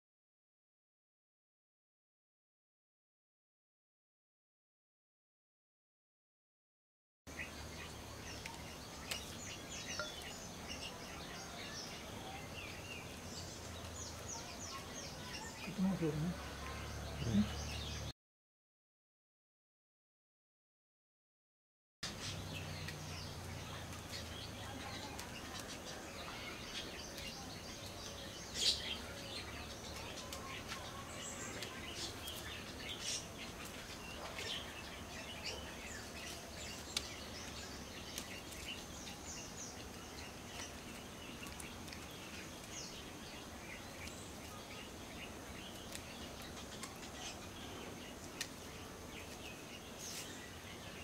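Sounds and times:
small birds chirping: 7.3s - 18.1s, 22.0s - 51.0s.

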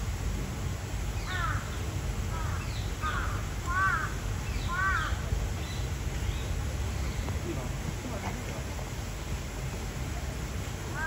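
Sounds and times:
crow cawing: 1.3s - 1.6s, 2.3s - 5.2s.

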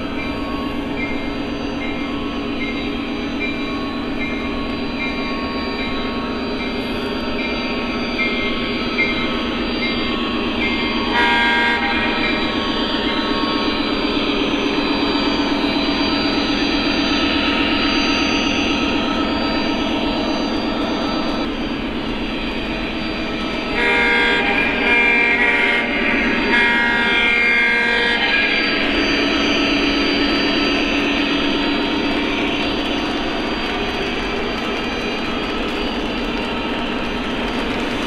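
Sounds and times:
model train rolling on track: 0.0s - 38.0s
multi-tone diesel horn: 11.1s - 12.3s, 23.8s - 28.6s.

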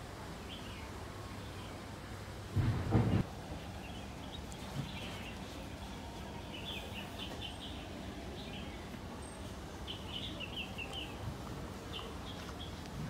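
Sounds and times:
small birds chirping: 3.6s - 13.0s.

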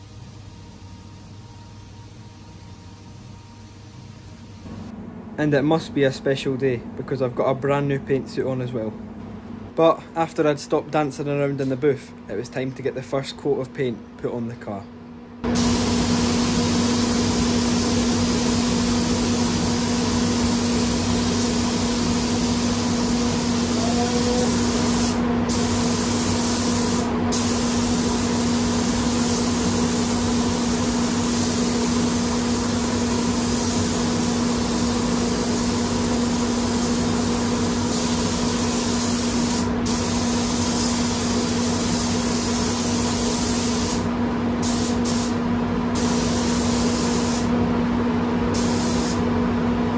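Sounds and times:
spray gun hissing: 15.5s - 45.4s, 46.0s - 47.5s, 48.6s - 49.2s.

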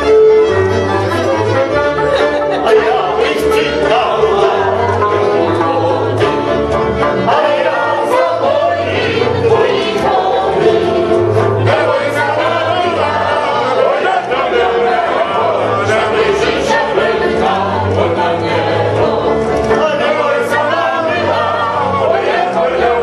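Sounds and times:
string band music: 0.0s - 23.0s
group of people singing: 1.2s - 23.0s.

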